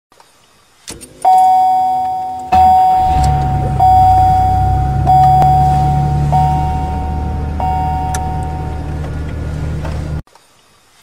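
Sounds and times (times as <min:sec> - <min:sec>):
low steady hum: 0:01.0 - 0:10.2
struck ringing tone: 0:01.3 - 0:09.1.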